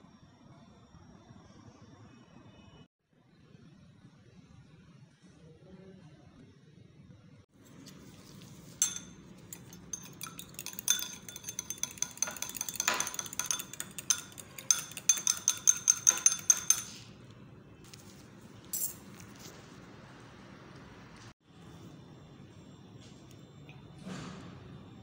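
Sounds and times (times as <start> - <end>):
utensil clinking against glass bowl: 7.8 - 17.2.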